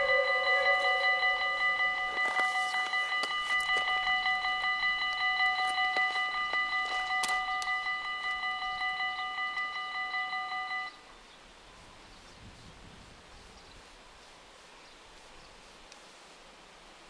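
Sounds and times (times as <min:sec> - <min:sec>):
level crossing warning bell: 0:00.0 - 0:11.0.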